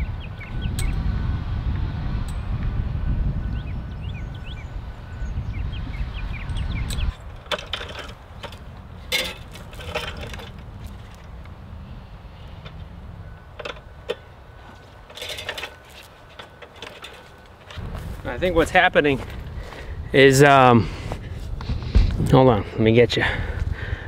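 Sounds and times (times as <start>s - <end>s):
wind rumbling on microphone: 0.0s - 24.0s
metallic clinks of fence wire: 6.5s - 11.3s, 13.6s - 17.8s.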